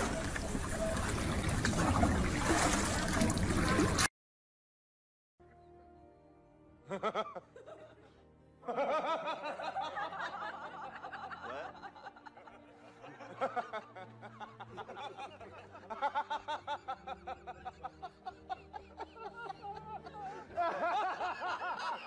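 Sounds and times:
quiet background music: 5.4s - 22.0s
person laughing hard: 6.9s - 22.0s.

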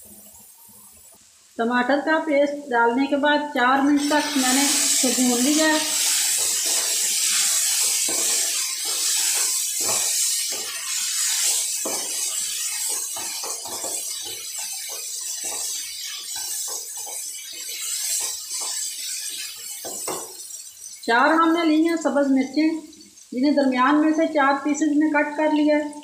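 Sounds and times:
food sizzling in a pan: 0.0s - 26.0s
wooden spatula scraping a pan: 4.0s - 20.6s.

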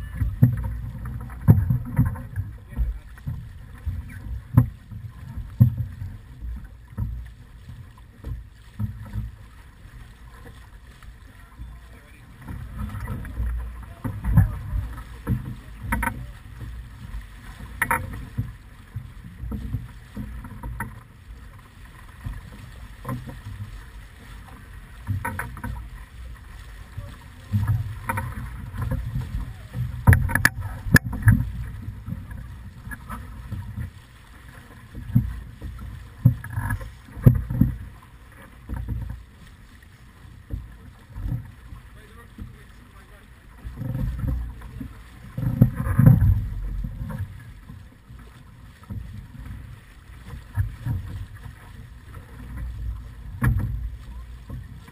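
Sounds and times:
water rushing past hull: 0.0s - 54.9s
sharp knocks and clicks: 30.0s - 31.5s.

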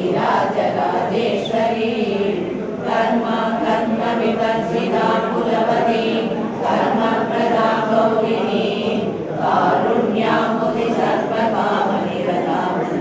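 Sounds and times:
group chanting a hymn: 0.0s - 13.0s.

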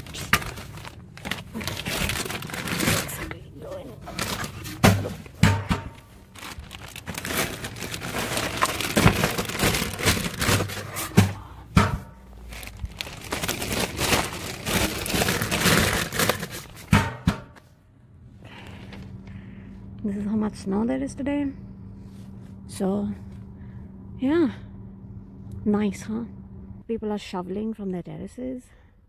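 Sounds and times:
plastic bags crinkling: 0.0s - 11.5s, 12.2s - 16.9s.

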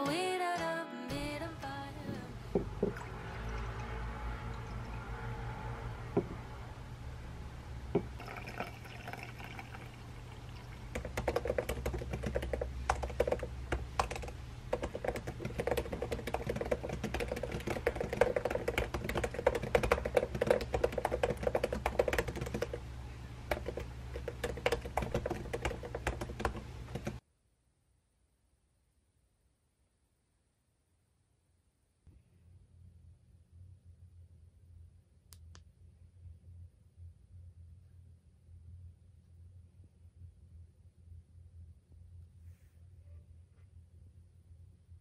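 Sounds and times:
liquid poured into a mug: 2.6s - 5.4s, 8.0s - 12.2s
fast typing on laptop keyboard: 10.5s - 27.2s.

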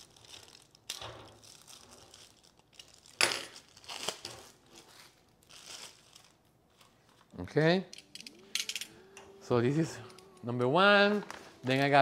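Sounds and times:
plastic packaging crinkling: 0.0s - 7.5s.

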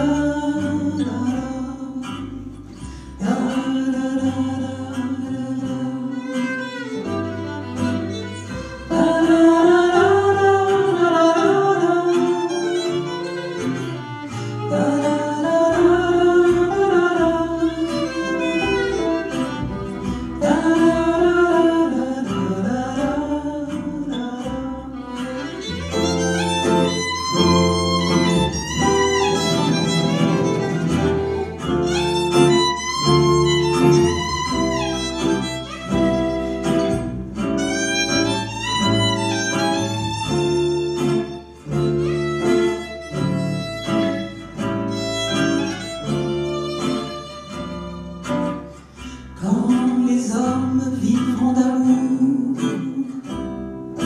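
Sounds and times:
double bass: 0.0s - 54.0s
strummed acoustic guitars: 0.0s - 54.0s
violin melody: 5.8s - 22.0s, 24.8s - 49.0s.

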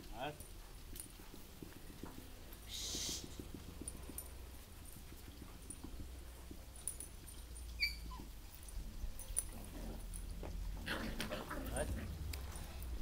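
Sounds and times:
puppy squeaking: 7.7s - 8.3s.

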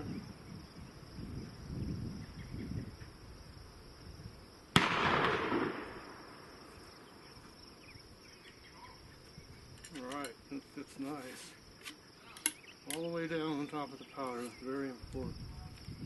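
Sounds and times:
gunshot with rolling echo: 4.7s - 6.6s.

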